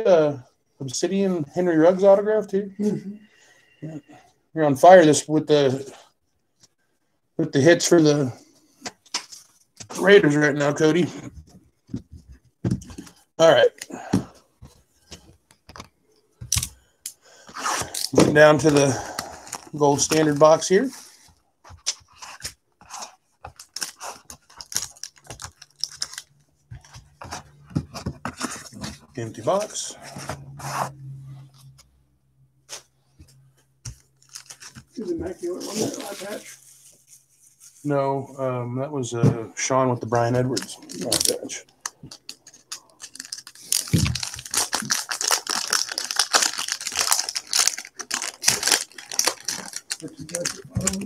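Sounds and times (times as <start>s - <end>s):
foil wrapper tearing and crinkling: 23.5s - 26.3s, 34.0s - 34.8s, 40.5s - 51.0s.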